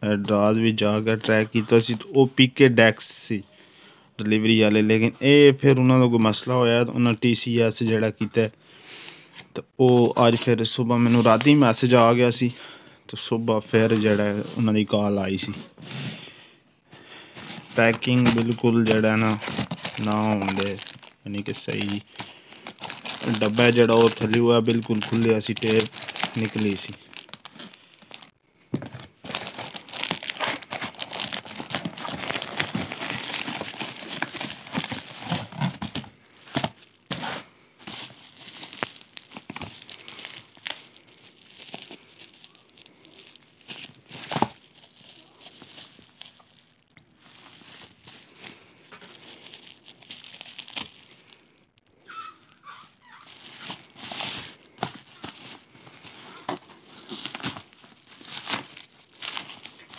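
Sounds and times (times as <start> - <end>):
cardboard rustling: 17.2 - 51.3, 53.3 - 59.9
bubble wrap crinkling: 17.2 - 59.9
packing tape ripping: 19.3 - 28.3, 29.2 - 46.4.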